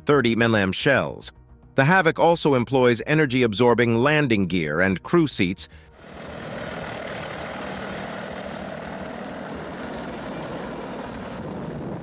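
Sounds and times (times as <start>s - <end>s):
helicopter rotor and engine noise: 6.0s - 12.0s.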